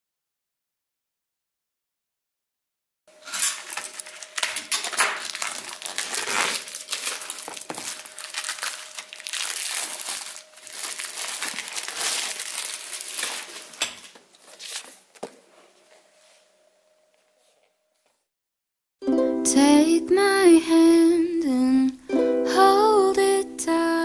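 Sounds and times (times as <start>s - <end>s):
packaging wrap crinkling: 3.1s - 15.3s.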